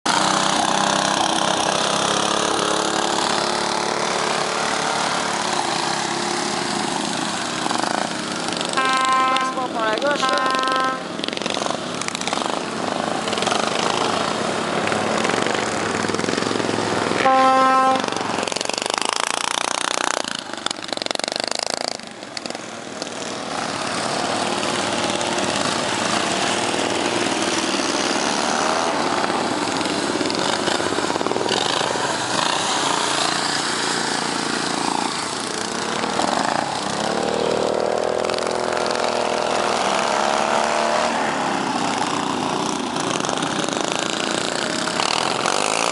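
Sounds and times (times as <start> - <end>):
lawn mower engines revving: 0.0 - 45.9
horn blast: 8.7 - 11.1, 17.2 - 18.3.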